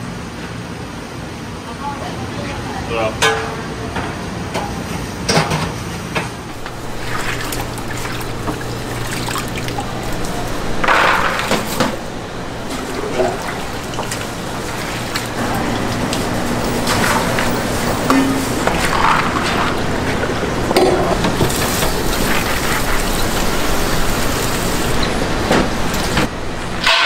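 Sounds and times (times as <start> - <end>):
steady low hum: 6.5 - 26.9
water pouring: 6.5 - 26.9.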